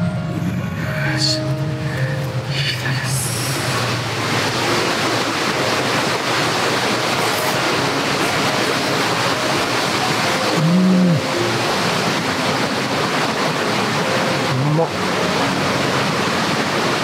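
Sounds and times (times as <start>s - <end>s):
steady rushing noise: 0.0s - 17.0s
man humming: 10.5s - 11.4s, 14.5s - 15.0s.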